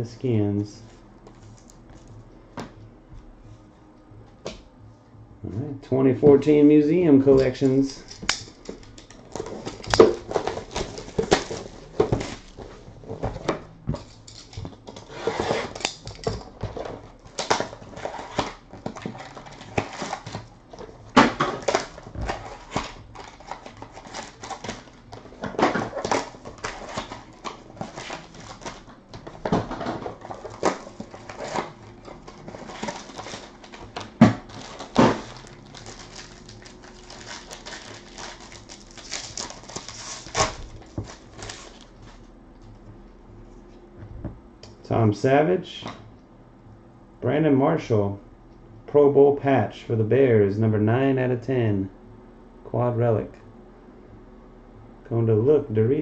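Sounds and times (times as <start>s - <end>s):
cardboard and wrappers crinkling: 7.4s - 42.2s.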